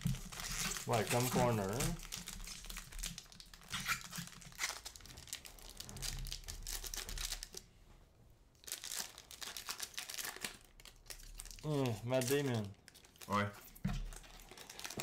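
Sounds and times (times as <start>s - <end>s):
cards and packaging crinkling: 0.0s - 7.6s, 8.6s - 15.0s.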